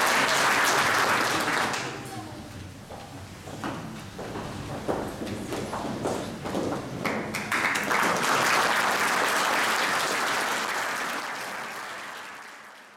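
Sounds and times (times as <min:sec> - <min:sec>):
audience applauding: 0:00.0 - 0:02.1, 0:07.0 - 0:12.9.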